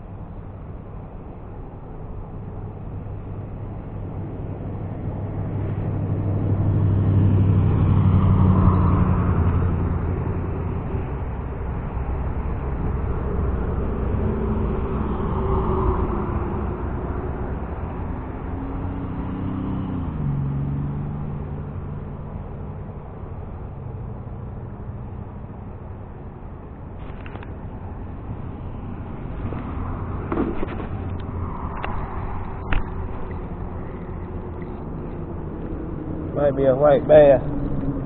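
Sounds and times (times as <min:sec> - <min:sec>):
vehicles passing: 0:00.0 - 0:38.0
engine drone dropping in pitch: 0:26.9 - 0:38.0.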